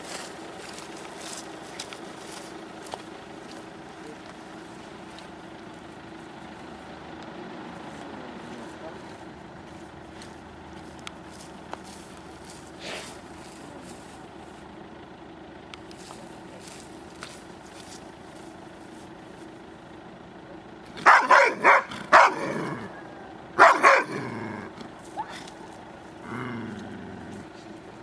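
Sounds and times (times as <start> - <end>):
steady low hum: 0.0 - 28.0
dog barking: 21.0 - 22.7, 23.6 - 24.2.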